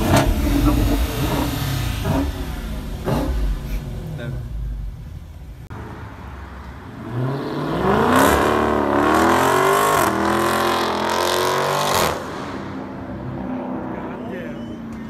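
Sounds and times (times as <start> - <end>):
car accelerating hard: 0.0 - 5.0, 7.0 - 14.3.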